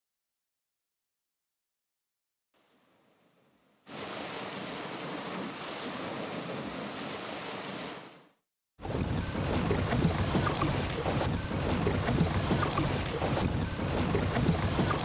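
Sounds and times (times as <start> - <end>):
wind: 2.6 - 15.0
sea waves rushing: 3.9 - 15.0.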